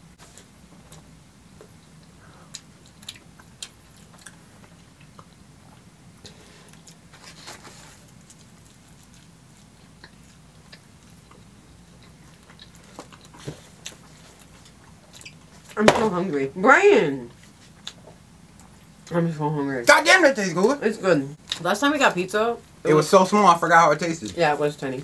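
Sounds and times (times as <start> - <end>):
faint low hum: 0.0 - 25.0
pizza being bitten and chewed: 2.0 - 15.7.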